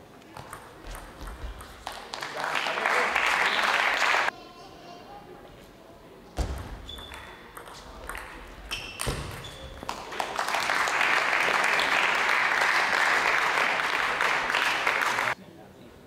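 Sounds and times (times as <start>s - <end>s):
spectators applauding: 1.9s - 4.3s, 9.8s - 15.4s
shoe squeaks on floor: 6.5s - 7.5s, 8.6s - 9.9s.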